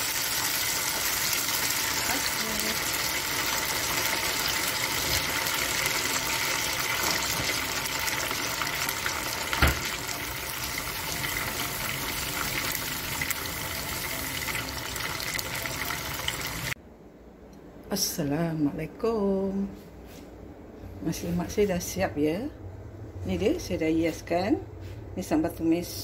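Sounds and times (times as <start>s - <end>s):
chicken sizzling in hot oil: 0.0s - 16.8s.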